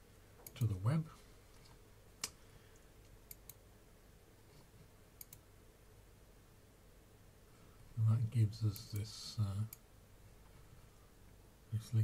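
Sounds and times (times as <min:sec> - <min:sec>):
faint steady hum: 0:00.0 - 0:12.0
computer mouse clicks: 0:01.6 - 0:03.6, 0:05.2 - 0:05.4.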